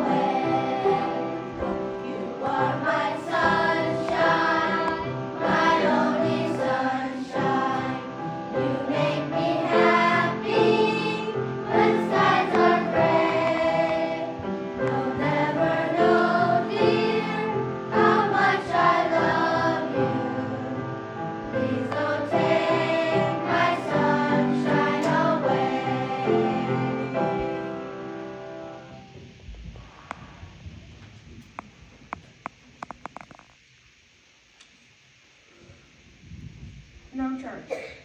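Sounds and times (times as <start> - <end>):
children's choir singing: 0.0 - 28.4.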